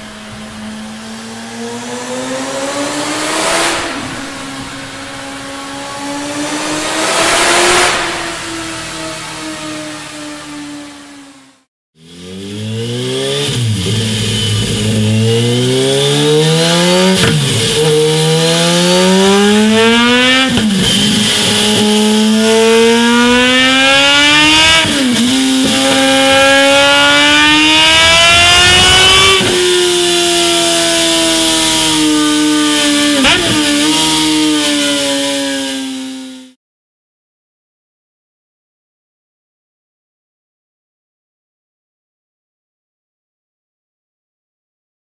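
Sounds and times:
motorcycle engine accelerating: 0.0 - 36.6
sharp exhaust crack: 6.0 - 9.9.

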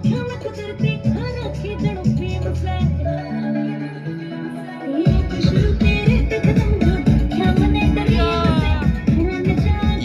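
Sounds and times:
loud dance music: 4.1 - 10.0
heavy bass beat: 5.1 - 10.0.

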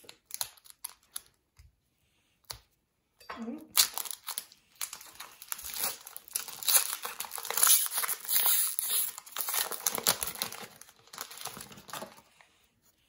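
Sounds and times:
foil wrapper crinkling and tearing: 0.0 - 1.4, 3.8 - 12.3.

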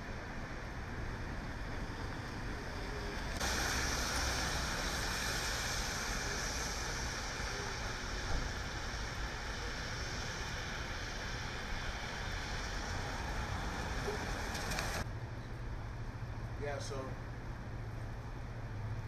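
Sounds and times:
low traffic rumble: 0.0 - 19.0
tyres hissing on wet pavement: 0.2 - 15.1.

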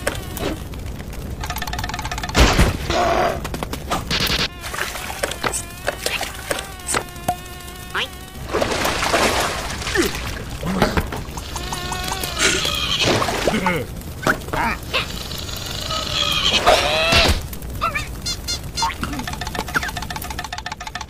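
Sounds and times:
scattered clicks: 0.0 - 2.4, 17.5 - 21.0
insect-like buzzing: 0.0 - 13.9, 14.6 - 21.0
cartoon hissing spray: 4.5 - 8.2.

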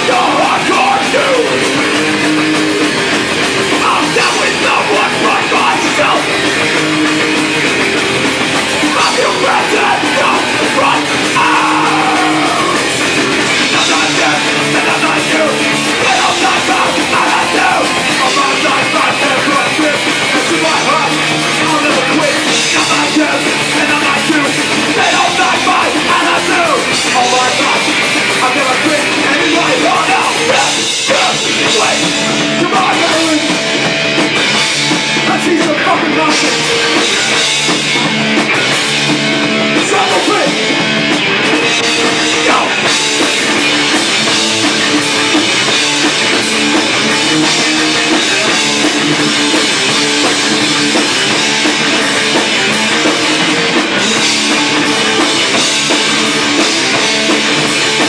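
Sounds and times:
singer shouting: 0.0 - 2.8, 3.7 - 7.4, 8.8 - 33.8, 35.2 - 37.5, 39.6 - 40.8, 41.5 - 43.4
distorted electric guitars: 0.0 - 58.0
pounding drum kit: 0.0 - 58.0.

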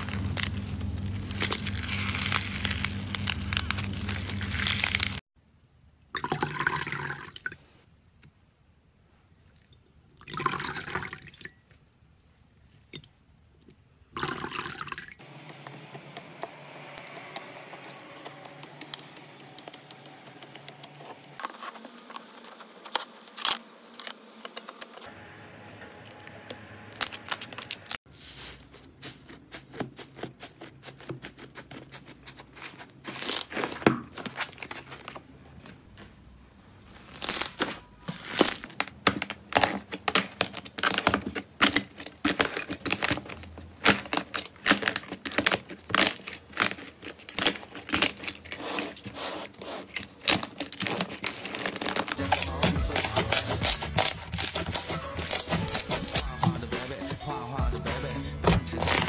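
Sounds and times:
clay crust crackling: 0.0 - 5.2, 15.2 - 25.1, 27.0 - 36.2, 36.8 - 59.0
slime crackling and popping: 0.0 - 5.2, 37.0 - 48.8, 50.2 - 56.5.

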